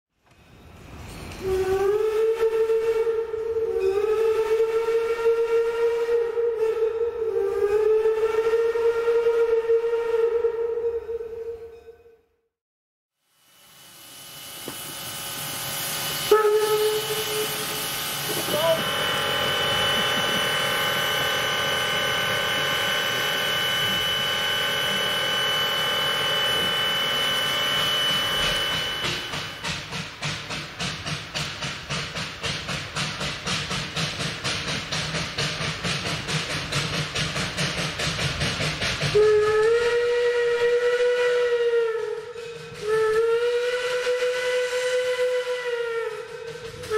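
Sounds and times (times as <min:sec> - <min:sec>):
steam locomotive whistle blowing: 0:01.4 - 0:12.2, 0:15.4 - 0:30.2, 0:38.6 - 0:46.9.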